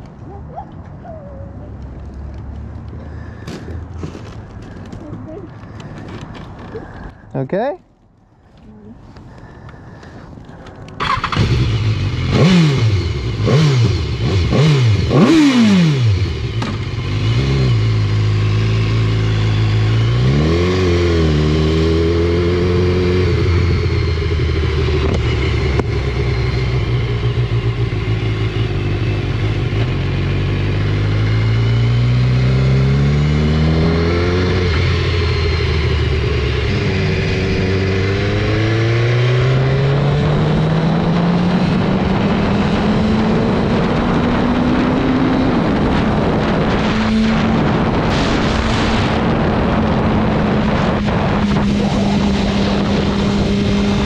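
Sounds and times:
motorcycle engine revving: 11.0 - 54.0.

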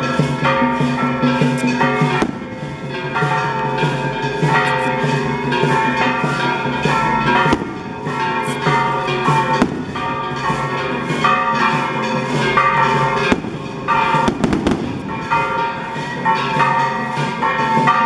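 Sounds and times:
ringing melody over drumbeats: 0.0 - 18.0
sharp bangs: 13.2 - 15.6.

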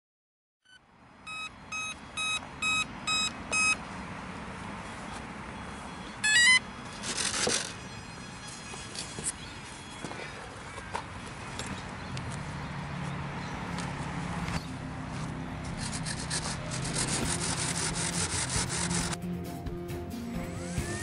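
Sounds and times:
speed controller beeps: 0.7 - 3.8, 5.6 - 10.0
rising run of tones: 6.2 - 9.8.

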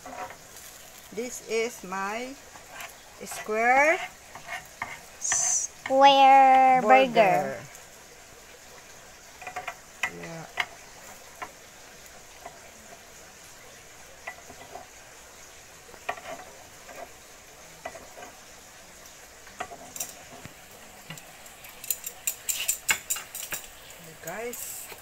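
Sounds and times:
eggs sizzling in a pan: 0.0 - 25.0
utensils clattering: 19.6 - 24.8.

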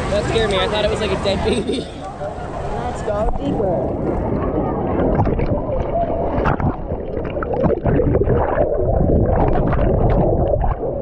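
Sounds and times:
muffled underwater bubbles gurgling: 3.7 - 11.0.

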